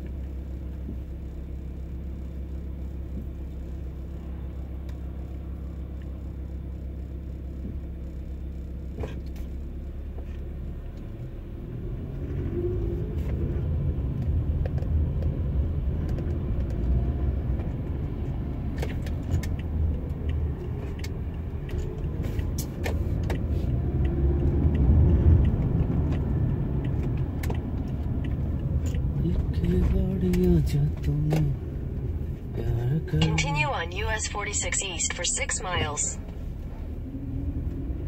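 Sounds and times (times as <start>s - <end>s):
car engine: 0.0s - 38.0s
road noise: 9.0s - 38.0s.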